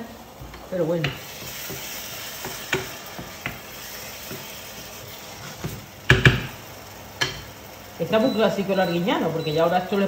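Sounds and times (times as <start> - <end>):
sauce frying in a pan: 0.0 - 10.0
wooden spoon stirring: 0.4 - 6.6.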